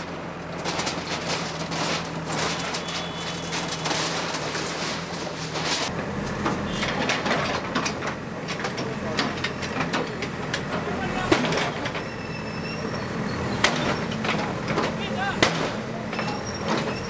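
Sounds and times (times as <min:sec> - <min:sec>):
diesel engine running: 0:00.0 - 0:17.0
debris clattering: 0:00.3 - 0:05.9
brief high squeal: 0:12.1 - 0:13.6.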